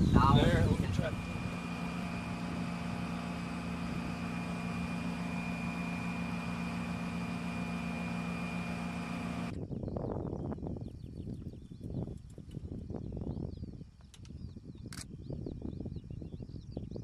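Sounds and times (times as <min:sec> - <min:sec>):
machinery humming with high whine: 0:00.0 - 0:10.6.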